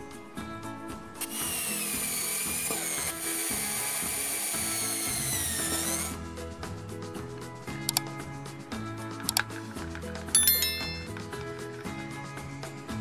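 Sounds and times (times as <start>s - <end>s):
background music: 0.0s - 13.0s
electric drill running: 1.2s - 6.2s.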